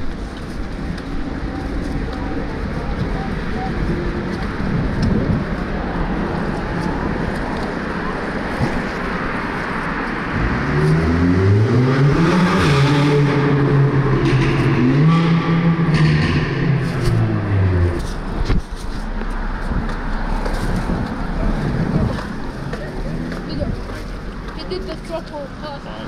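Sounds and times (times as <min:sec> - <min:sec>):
traffic rumbling in underpass: 0:00.0 - 0:26.0
vehicle engine revving: 0:10.2 - 0:23.9.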